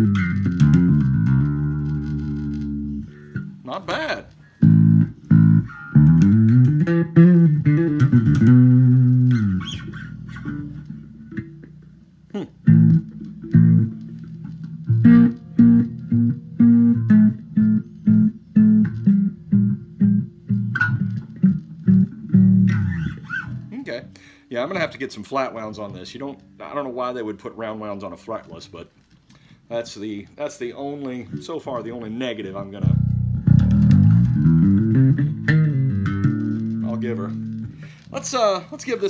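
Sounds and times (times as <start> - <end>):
fretless bass guitar playing: 0.0 - 28.7, 30.5 - 39.0.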